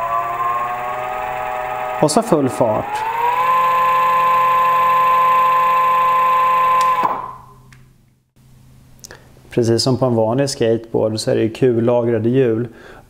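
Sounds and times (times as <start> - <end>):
electric motor whine: 0.0 - 7.4.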